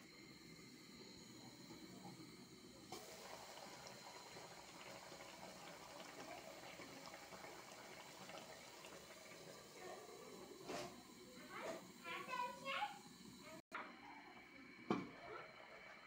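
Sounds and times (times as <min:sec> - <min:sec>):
curry bubbling with small pops: 0:02.8 - 0:12.0.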